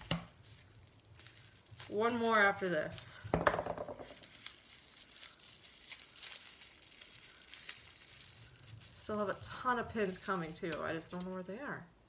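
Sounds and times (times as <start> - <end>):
wrapping crinkling and rustling: 0.0 - 11.9
light tearing: 4.0 - 11.5.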